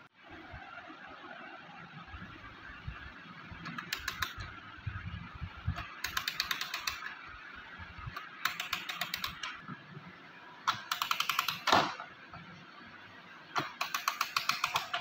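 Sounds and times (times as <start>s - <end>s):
clock winding ratchet clicks: 3.8s - 4.4s, 5.8s - 7.1s, 8.4s - 9.5s, 10.7s - 11.7s, 13.6s - 15.0s.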